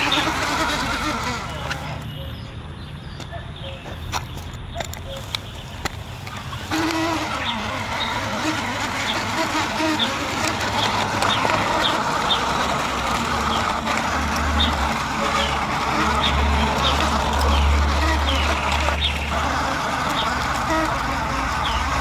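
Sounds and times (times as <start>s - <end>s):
toy truck wheels on gravel: 0.0s - 2.4s, 3.9s - 22.0s.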